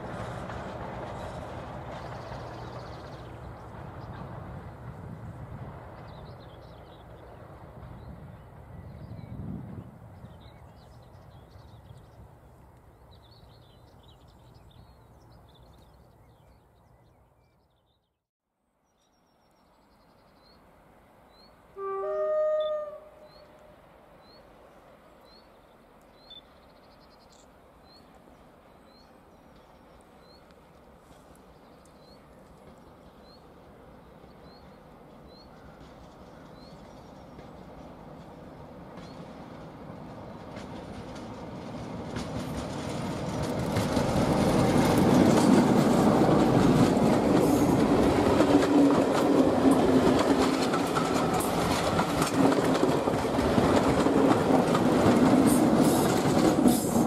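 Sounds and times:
locomotive engine and wheels: 0.0s - 17.6s, 19.4s - 57.0s
two-tone train horn: 21.8s - 23.8s.

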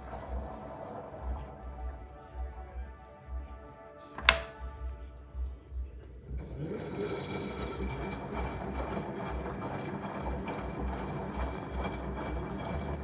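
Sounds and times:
pulsing low hum: 0.0s - 3.8s, 4.6s - 13.0s
faint drum drive whine: 0.0s - 7.0s.

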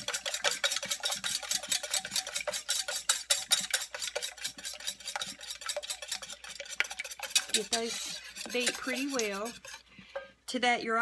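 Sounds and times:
wire whisk beating eggs in metal pan: 0.0s - 10.4s.

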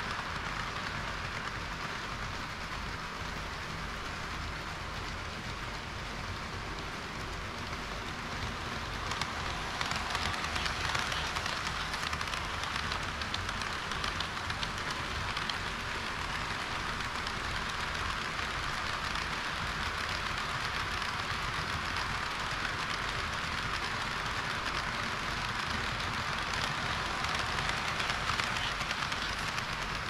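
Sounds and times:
model train wheels rattling on rails: 0.0s - 30.0s
ticks over rail joints: 6.7s - 30.0s.

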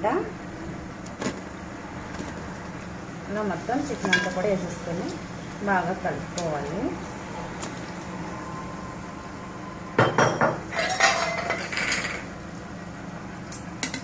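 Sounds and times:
metal spoon scraping metal pot: 10.7s - 12.2s.

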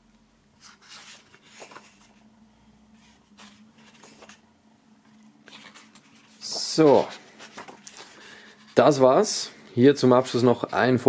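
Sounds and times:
faint steady hum: 0.0s - 11.0s
pages rustling: 0.6s - 2.3s, 2.9s - 9.2s.

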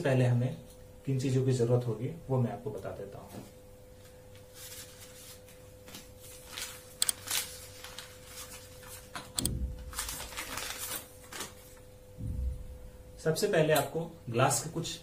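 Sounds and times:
faint steady hum: 0.0s - 15.0s
paper packet rustling: 4.6s - 11.8s
soft low thump: 9.4s - 9.9s, 12.2s - 13.2s.

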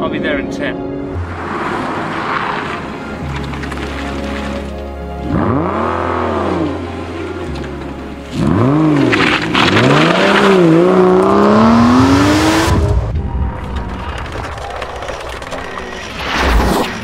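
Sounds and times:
car engine revving hard: 5.2s - 6.8s, 8.3s - 13.1s.

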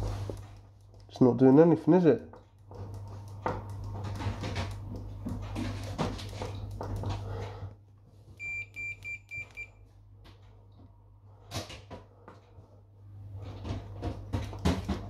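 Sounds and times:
multimeter continuity beeps: 8.4s - 9.8s.

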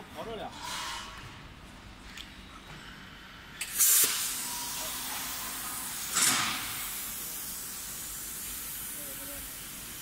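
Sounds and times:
compressed air blasts: 3.6s - 10.0s
compressed air hissing: 3.6s - 10.0s.

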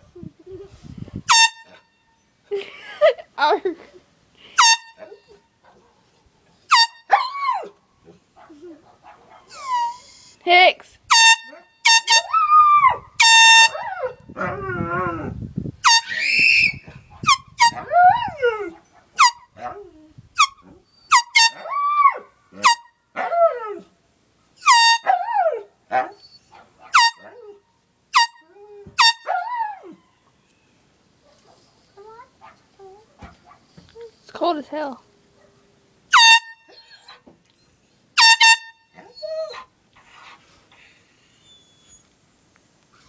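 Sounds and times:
aerosol air horn toots: 1.3s - 1.8s, 4.6s - 5.0s, 6.7s - 7.1s, 11.1s - 12.3s, 13.2s - 13.8s, 15.8s - 16.4s, 24.7s - 25.1s, 27.0s - 27.4s, 28.1s - 28.4s, 29.0s - 29.2s, 36.1s - 36.6s, 38.2s - 38.8s
dog howling: 17.7s - 18.8s.

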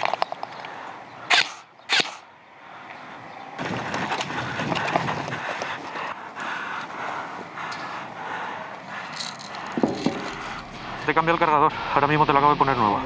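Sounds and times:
airsoft gun shots: 1.3s - 2.2s.

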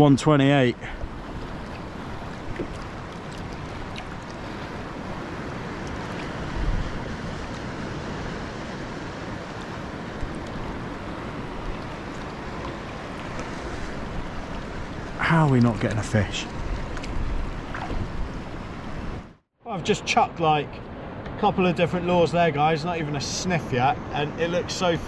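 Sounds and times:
small waves lapping on hull: 0.8s - 19.4s
wind on microphone: 0.9s - 15.1s, 16.5s - 19.3s.

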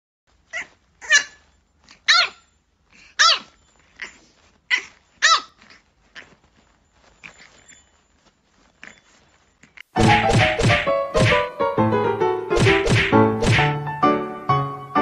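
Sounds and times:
puppy barking high-pitched yaps: 0.5s - 1.4s, 2.1s - 2.5s, 3.2s - 3.5s, 4.7s - 5.6s.

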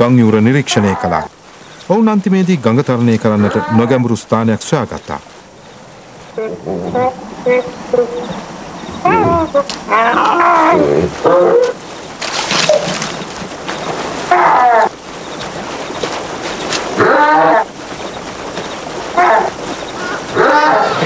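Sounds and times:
short apelike calls: 5.1s - 16.0s, 16.6s - 21.0s.

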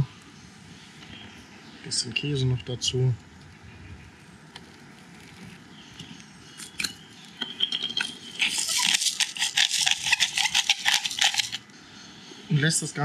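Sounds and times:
pepper grinder clicking: 8.4s - 11.6s.

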